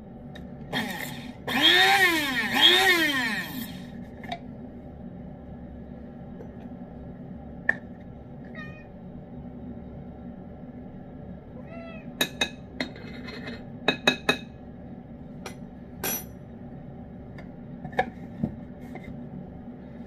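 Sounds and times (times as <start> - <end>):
cat meowing: 8.5 - 8.9, 11.6 - 12.2.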